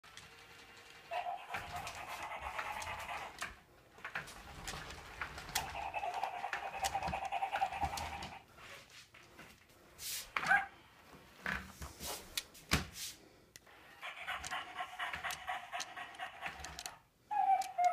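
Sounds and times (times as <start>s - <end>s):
toy puppy electronic panting: 1.1s - 3.6s, 5.3s - 8.4s, 13.7s - 17.9s.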